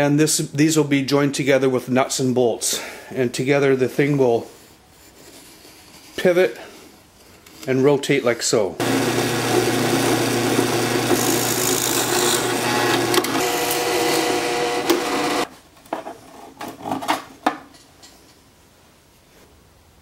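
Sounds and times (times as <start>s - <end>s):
drill press boring wood: 8.8s - 15.5s.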